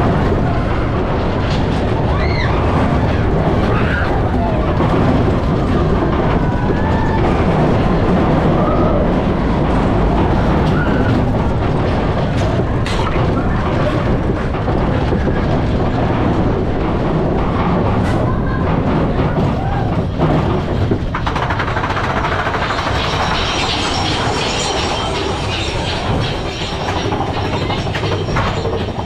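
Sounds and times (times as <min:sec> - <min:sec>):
roller coaster wheels rumbling on rails: 0:00.0 - 0:29.0.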